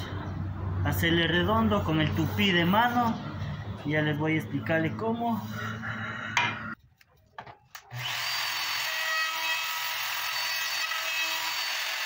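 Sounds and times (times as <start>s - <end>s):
wood router whining: 7.8s - 12.0s.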